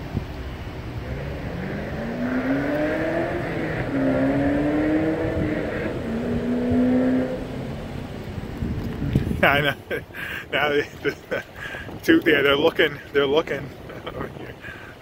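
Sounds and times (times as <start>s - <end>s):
vehicle engine accelerating: 0.5s - 9.2s.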